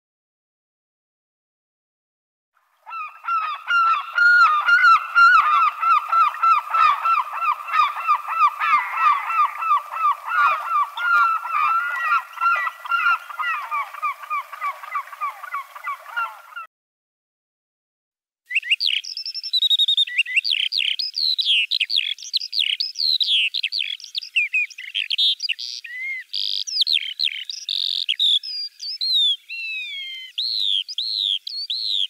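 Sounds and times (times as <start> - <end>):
gulls calling: 2.8 - 16.7.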